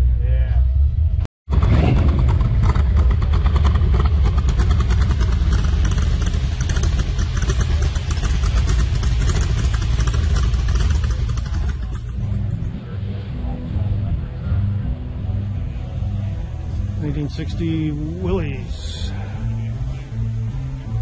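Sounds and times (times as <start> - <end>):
hot rod engine idling: 0.1 - 21.0.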